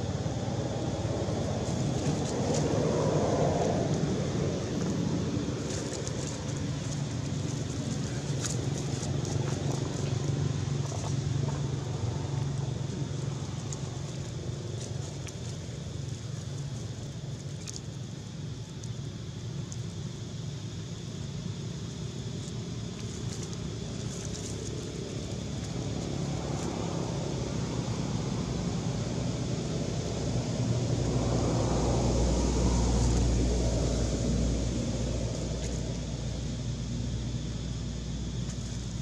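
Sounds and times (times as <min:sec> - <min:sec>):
passing motor vehicle rumble: 0:00.0 - 0:39.0.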